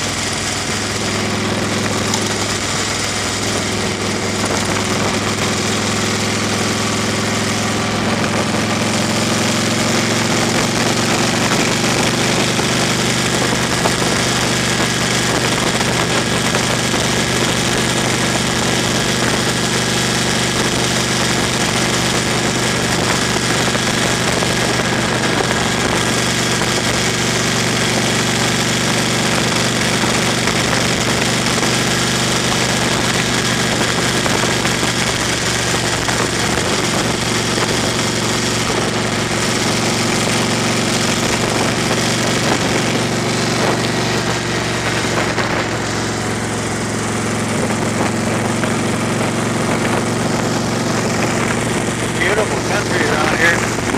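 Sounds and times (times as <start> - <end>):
tyre and road noise on gravel: 0.0 - 53.9
vehicle engine hum: 0.0 - 53.9.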